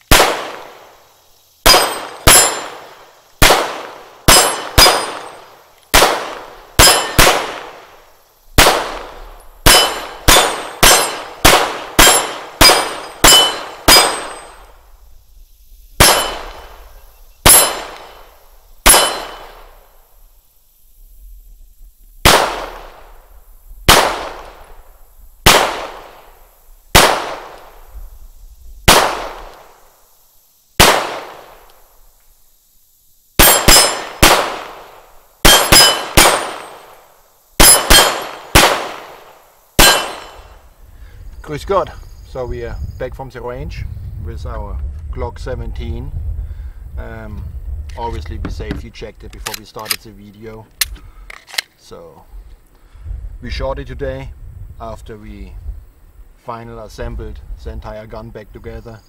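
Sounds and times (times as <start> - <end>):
pistol shots: 0.1 - 0.9, 1.6 - 8.0, 8.6 - 14.7, 16.0 - 16.8, 17.4 - 19.8, 22.2 - 23.2, 23.9 - 24.7, 25.4 - 27.8, 28.9 - 29.7, 30.8 - 31.7, 33.4 - 37.0, 37.6 - 40.6
steel plate clanging: 9.7 - 11.3, 12.0 - 14.6, 17.5 - 18.2, 18.9 - 19.5.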